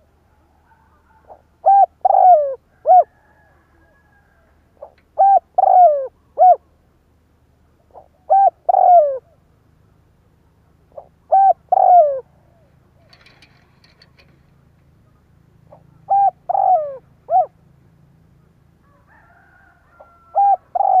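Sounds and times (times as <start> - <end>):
dove cooing: 0.0 - 6.7, 7.8 - 9.4, 10.9 - 14.4, 15.7 - 17.6, 18.4 - 21.0.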